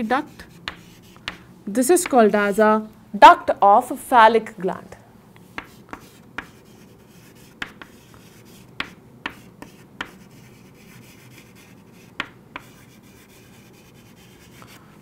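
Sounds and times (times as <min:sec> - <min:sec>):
chalk tapping on chalkboard: 0:00.2 - 0:02.2, 0:05.4 - 0:14.8.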